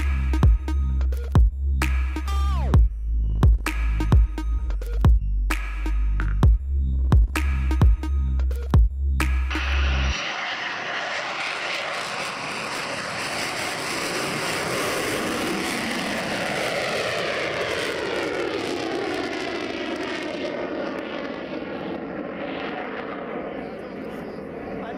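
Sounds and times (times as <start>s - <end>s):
jet engine roar: 9.5s - 24.9s.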